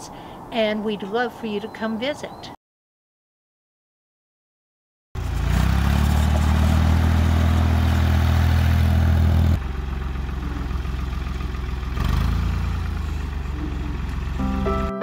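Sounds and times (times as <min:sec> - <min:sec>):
wheel loader engine running: 0:05.2 - 0:15.0.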